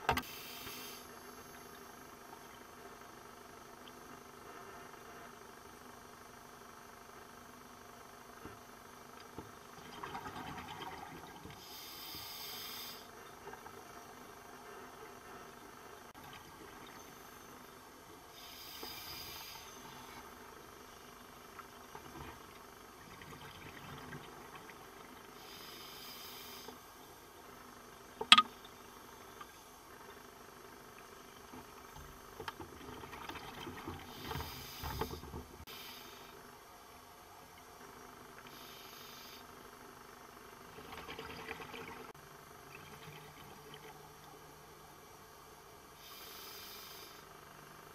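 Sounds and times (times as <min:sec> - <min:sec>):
regulator hiss: 0:00.1 - 0:01.6, 0:11.6 - 0:13.1, 0:18.3 - 0:20.2, 0:25.4 - 0:27.1, 0:34.1 - 0:36.5, 0:38.5 - 0:39.8, 0:45.9 - 0:47.9
exhaled bubbles gurgling underwater: 0:21.6 - 0:25.4.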